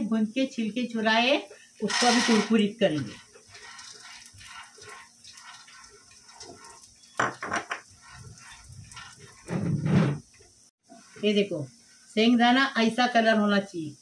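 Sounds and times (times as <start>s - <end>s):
peanuts frying: 1.1s - 13.0s
spoon scraping pan: 1.8s - 11.6s.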